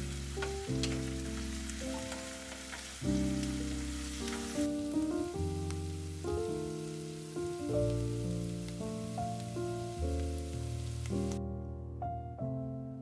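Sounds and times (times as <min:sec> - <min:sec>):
onions sizzling in a frying pan: 0:00.0 - 0:11.4
background music of held chords: 0:00.0 - 0:13.0.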